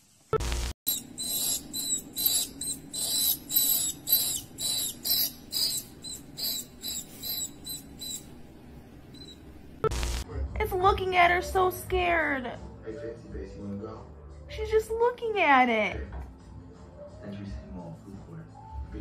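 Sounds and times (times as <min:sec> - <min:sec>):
rodent distress squeaks: 0:00.9 - 0:09.7.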